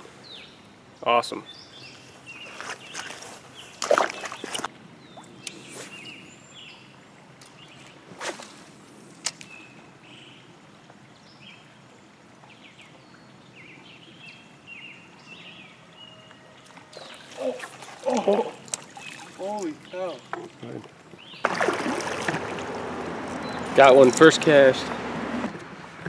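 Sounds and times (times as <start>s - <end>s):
small birds chirping: 0.0s - 8.0s, 12.4s - 22.4s, 23.0s - 24.6s.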